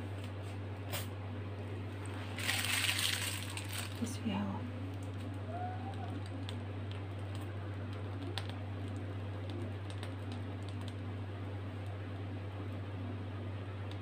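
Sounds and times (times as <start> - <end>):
steady low hum: 0.0 - 14.0
small ticks and clicks: 4.9 - 11.1.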